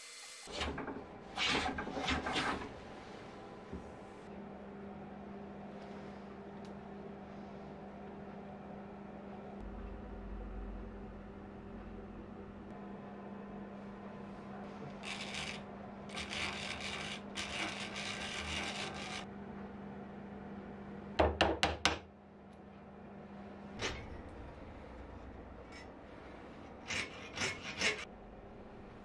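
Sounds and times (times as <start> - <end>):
hand saw trimming: 15.0 - 19.2
wood rasping strokes: 15.0 - 19.3, 26.6 - 28.1.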